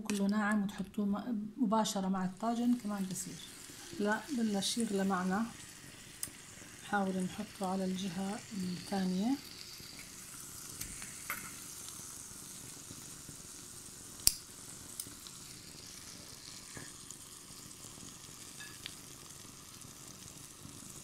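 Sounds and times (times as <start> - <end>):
chicken sizzling in oil: 2.3 - 21.0.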